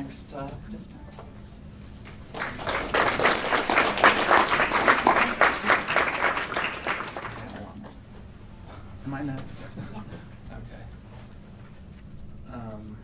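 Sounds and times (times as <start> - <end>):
audience applauding: 2.1 - 7.8.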